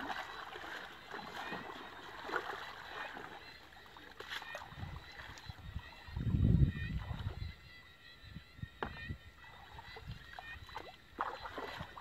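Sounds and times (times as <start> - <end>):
small sharp splashes: 0.0 - 5.5, 9.8 - 12.0
muddy water sloshing: 0.0 - 7.7, 8.8 - 12.0.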